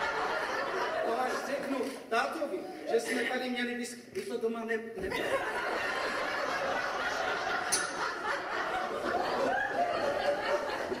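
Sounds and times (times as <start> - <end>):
audience laughing: 0.0 - 1.9, 5.1 - 11.0.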